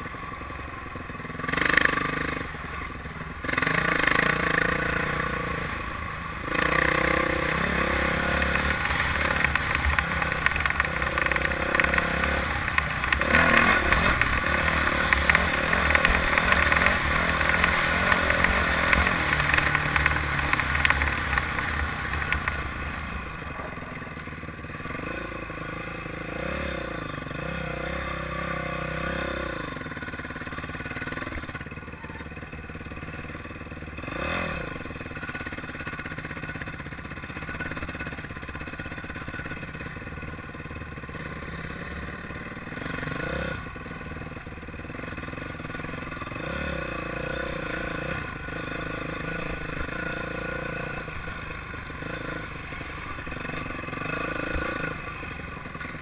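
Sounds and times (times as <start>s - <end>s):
dirt bike engine revving: 0.0s - 31.6s, 33.8s - 39.9s, 40.9s - 56.0s
clatter over bumps: 1.1s - 25.6s.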